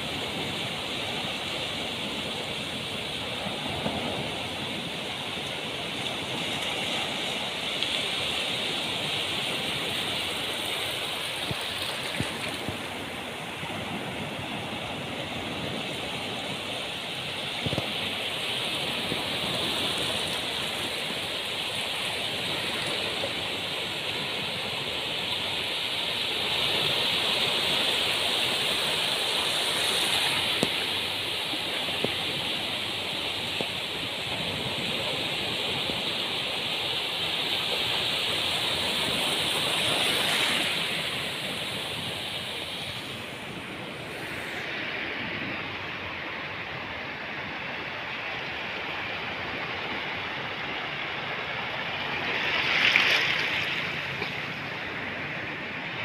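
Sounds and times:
ocean waves washing onto beach: 0.0 - 56.0.

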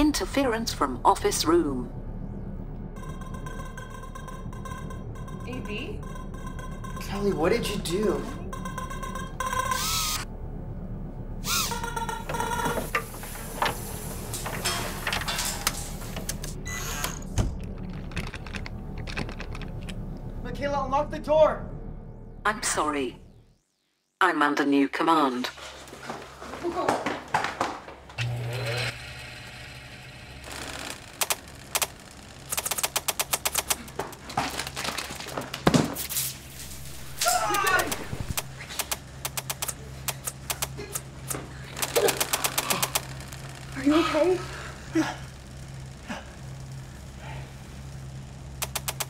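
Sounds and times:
low electronic hum: 0.0 - 26.7, 28.1 - 49.0.

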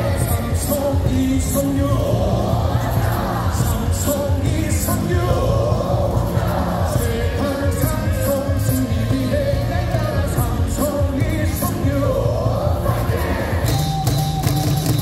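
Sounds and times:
amplified stadium cheer song: 0.0 - 15.0.

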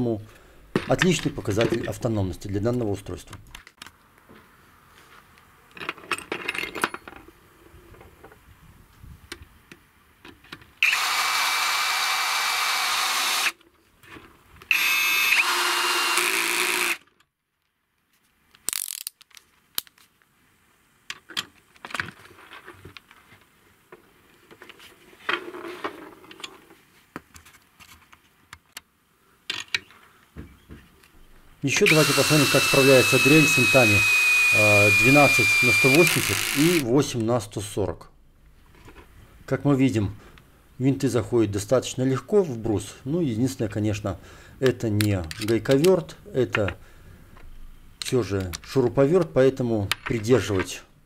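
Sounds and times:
cordless drill whirring: 10.8 - 13.6, 14.7 - 17.0, 31.8 - 36.8
metallic clicks of drill bits: 10.8 - 13.6, 14.7 - 17.2, 31.7 - 36.8, 45.0 - 46.7.

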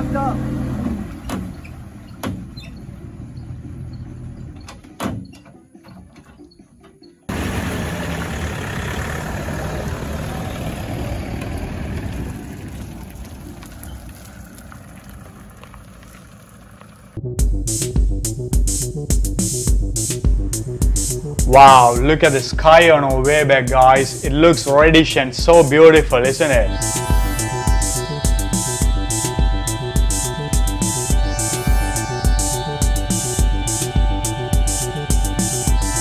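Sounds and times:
truck engine idling: 0.0 - 17.2.

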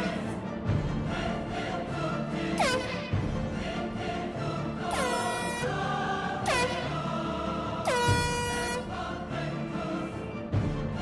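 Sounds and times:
background music: 0.0 - 11.0
air horn blasts: 2.6 - 3.2, 4.9 - 7.1, 7.8 - 9.0.

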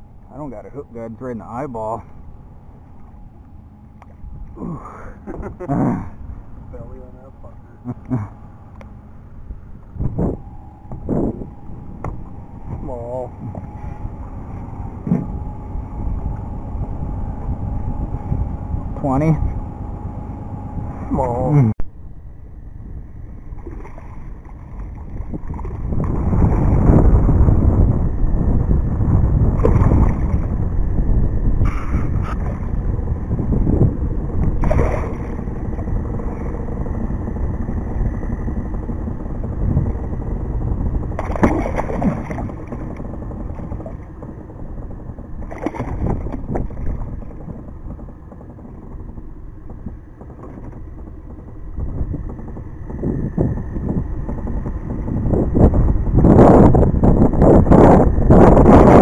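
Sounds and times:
steady low rumble: 0.0 - 59.0
fish splashing in water: 34.6 - 35.4, 41.2 - 42.9.

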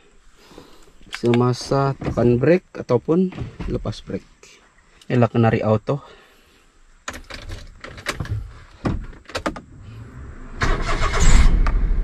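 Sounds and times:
rumbling rush: 9.8 - 12.0.

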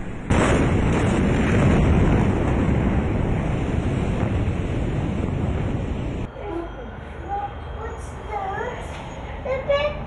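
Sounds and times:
deep rumble: 0.0 - 6.3
huge explosion blast: 0.0 - 6.3.

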